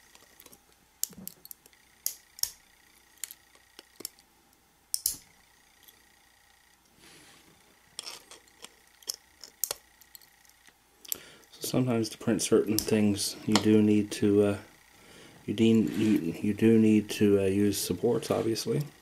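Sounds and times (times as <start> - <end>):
pliers snapping plastic pieces: 4.9 - 5.2.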